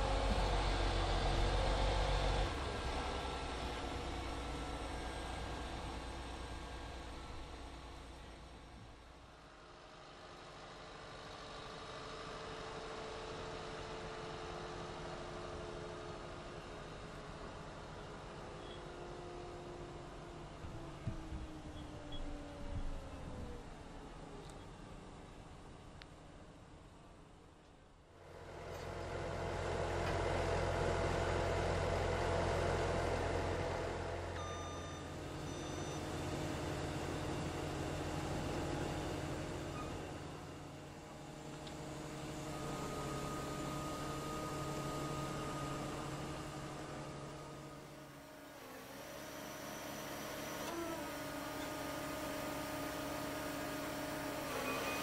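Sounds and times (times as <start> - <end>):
diesel engine running: 0.0 - 10.2, 28.2 - 55.0
back-up alarm beeps: 34.4 - 36.1.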